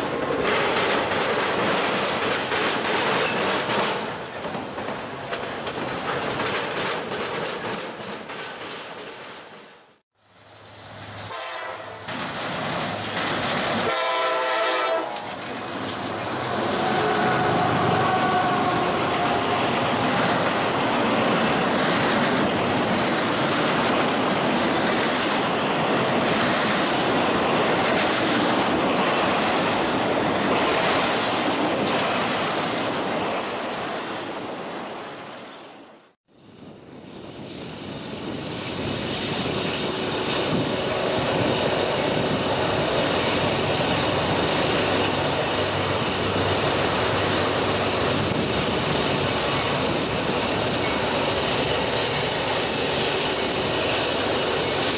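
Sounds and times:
train wheels clacking over rail joints: 0.0s - 10.0s.

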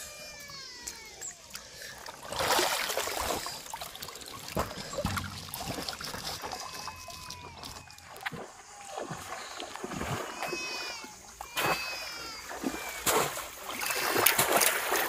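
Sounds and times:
river water splashing: 1.4s - 15.0s
thin falling calls: 4.2s - 8.8s.

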